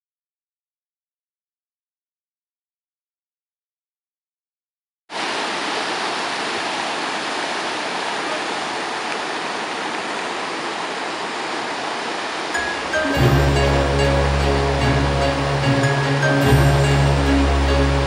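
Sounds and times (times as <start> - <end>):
whitewater rushing: 5.1 - 18.0.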